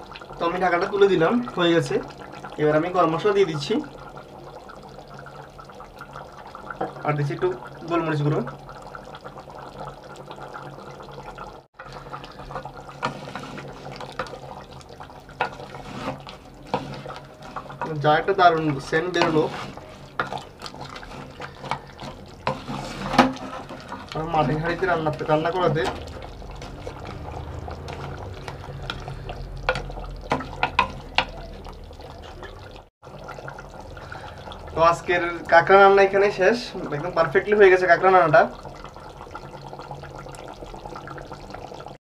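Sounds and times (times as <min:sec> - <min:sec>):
curry bubbling in a pot: 0:00.0 - 0:42.0.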